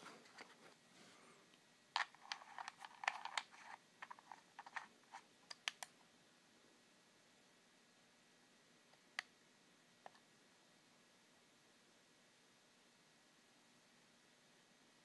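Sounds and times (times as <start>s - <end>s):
small clicks and scrapes: 0.1s - 0.8s, 2.0s - 5.9s.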